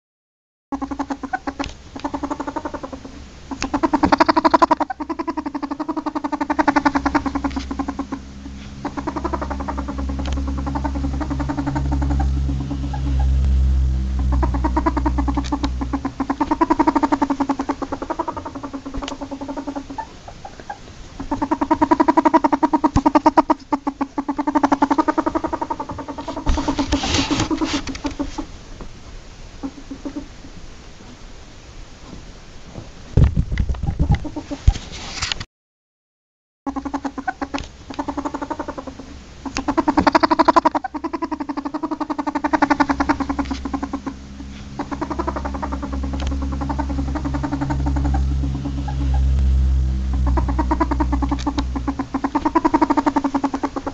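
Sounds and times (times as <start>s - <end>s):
ferret clucking chatter: 0.7s - 28.5s, 29.6s - 30.3s, 36.7s - 53.9s
low steady hum: 0.7s - 34.8s, 36.7s - 53.9s.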